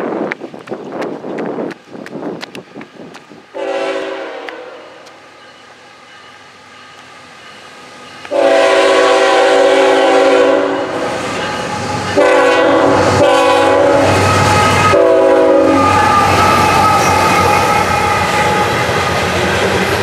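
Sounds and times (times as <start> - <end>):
low rumble of locomotives: 0.0 - 20.0
locomotive air horn chord: 3.6 - 5.0, 8.2 - 17.4.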